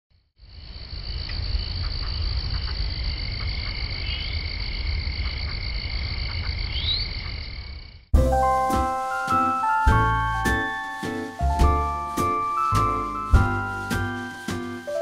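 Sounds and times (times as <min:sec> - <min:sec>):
high pulsing insect chirps: 0:00.4 - 0:08.1.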